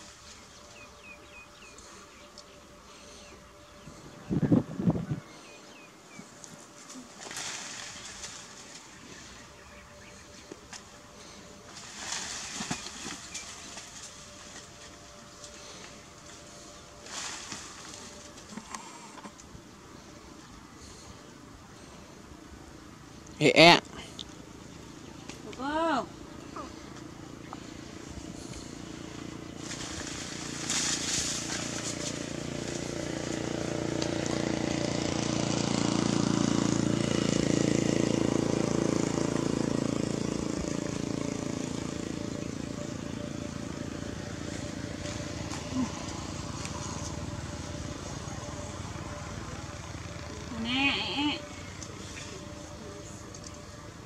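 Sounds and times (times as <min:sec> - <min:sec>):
leaves and twigs rustling: 0:00.0 - 0:04.1, 0:05.2 - 0:21.2, 0:26.7 - 0:37.2, 0:39.8 - 0:53.9
faint hum: 0:00.0 - 0:54.0
passing vehicle engine: 0:00.0 - 0:54.0.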